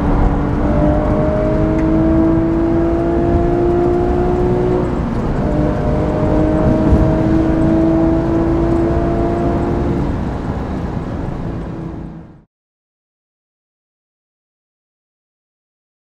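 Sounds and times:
car engine accelerating hard: 0.0s - 12.5s.

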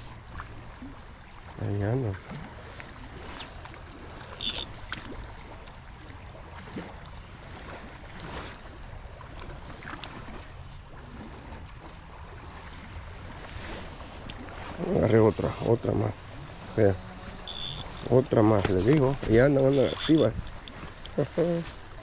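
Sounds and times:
river running over gravel: 12.7s - 22.0s.

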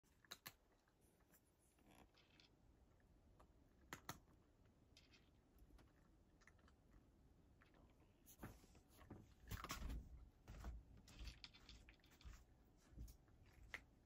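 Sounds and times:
cat crunching food: 0.0s - 8.0s.

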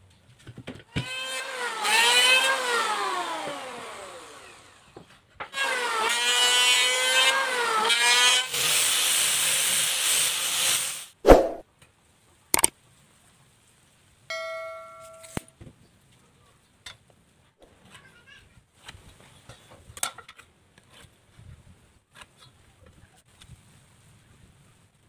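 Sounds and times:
angle grinder sanding wood: 1.0s - 5.0s, 5.6s - 11.0s
electric planer whining on wood: 1.0s - 5.0s.

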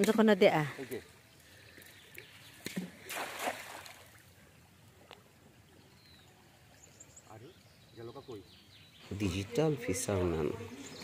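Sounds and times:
water splashing and sloshing: 0.0s - 7.0s.

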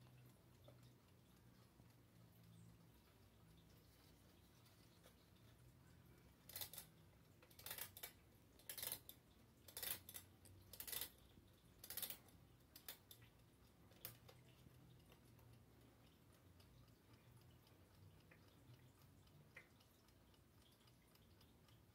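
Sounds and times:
clock knob grating: 6.5s - 6.9s, 7.5s - 9.1s, 9.7s - 11.2s, 11.8s - 13.1s.

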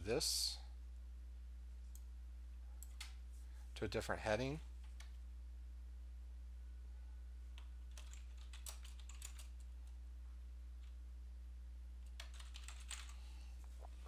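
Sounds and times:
typing on computer keyboard: 7.6s - 9.7s, 12.0s - 13.2s.

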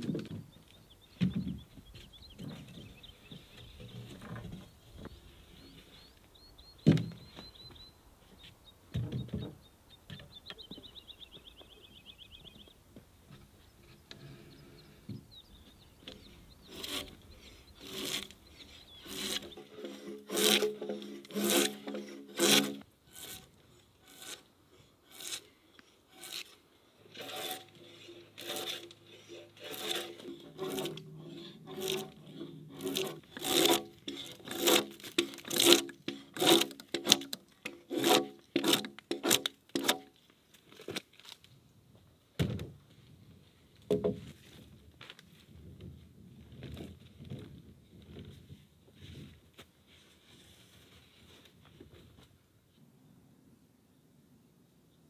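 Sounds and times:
drawknife scraping log: 16.7s - 24.5s, 25.1s - 40.1s.

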